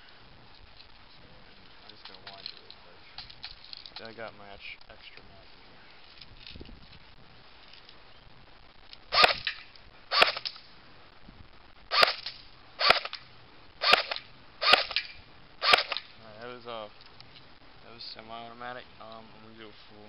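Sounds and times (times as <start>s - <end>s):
airsoft gun shots: 9.1s - 10.6s, 11.9s - 13.2s, 13.8s - 16.1s.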